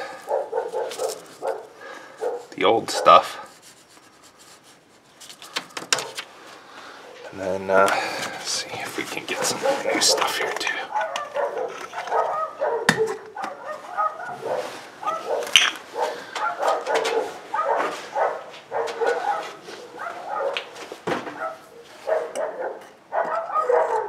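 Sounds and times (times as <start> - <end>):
animal whining and yelping: 10.9 - 20.6.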